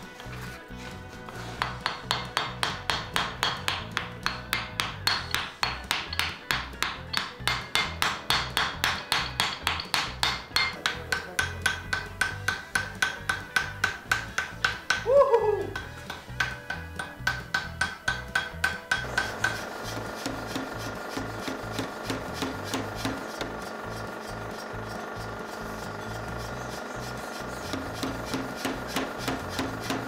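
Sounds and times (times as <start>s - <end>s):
hammer blows on anvil: 1.6s - 23.7s, 25.8s - 30.0s.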